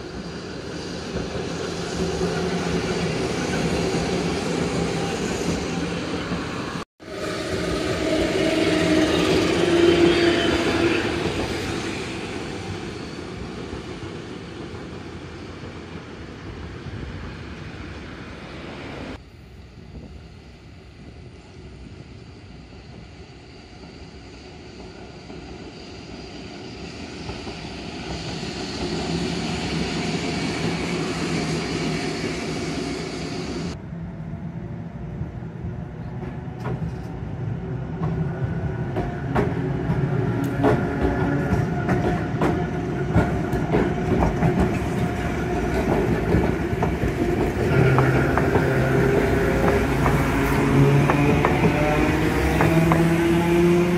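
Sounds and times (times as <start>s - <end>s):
tram wheels rumbling on rails: 7.4s - 18.0s, 26.6s - 53.9s
tram motor hum: 38.0s - 53.9s
road traffic: 46.9s - 53.9s.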